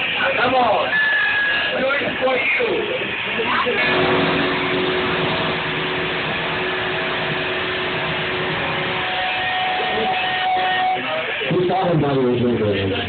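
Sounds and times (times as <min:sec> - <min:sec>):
rock band playing loud: 0:03.4 - 0:11.6
held electric guitar note: 0:03.8 - 0:11.3.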